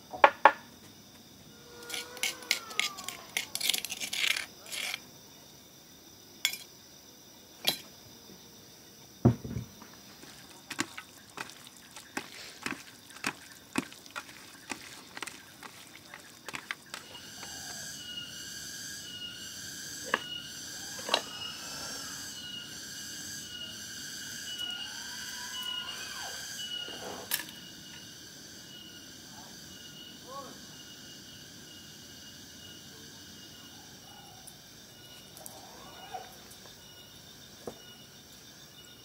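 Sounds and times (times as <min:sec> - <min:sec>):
pulsing insect chorus: 0:00.0 - 0:39.0
knocks and clinks of food preparation: 0:06.5 - 0:06.7, 0:07.6 - 0:07.9, 0:09.2 - 0:17.2.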